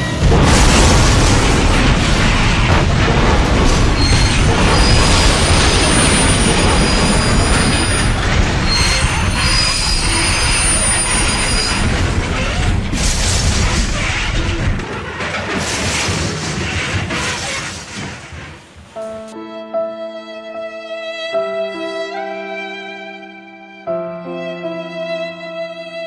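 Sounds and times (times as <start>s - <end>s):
train rattling on rails: 0.0s - 19.2s
wheel squeals: 3.9s - 15.6s.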